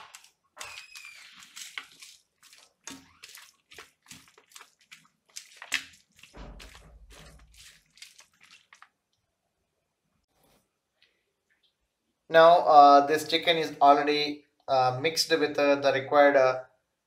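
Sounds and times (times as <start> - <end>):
hand squelching raw chicken: 0.0 - 9.4.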